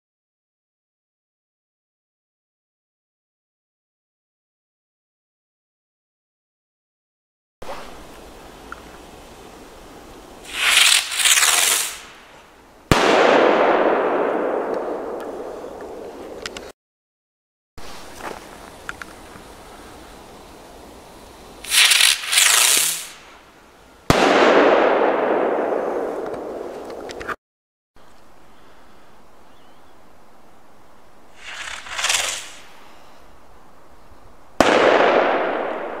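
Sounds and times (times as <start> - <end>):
firework launch hissing rush: 10.4 - 12.4, 21.6 - 23.5, 31.3 - 33.1
small firework pops: 10.5 - 16.7, 21.6 - 23.3, 24.1 - 27.4, 31.4 - 32.7, 34.6 - 35.8
firework bang with rumbling echo: 12.9 - 15.4, 24.1 - 26.7, 34.6 - 36.0.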